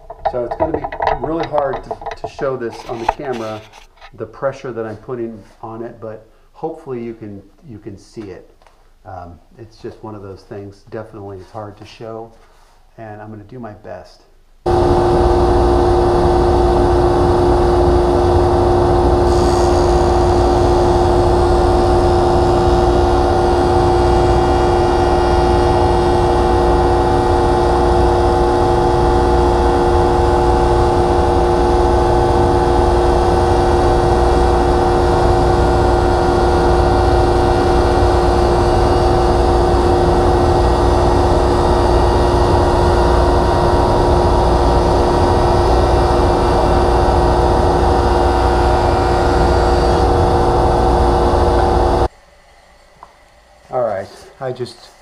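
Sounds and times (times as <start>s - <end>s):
jointer humming and whining: 0.0s - 3.8s, 14.7s - 52.1s.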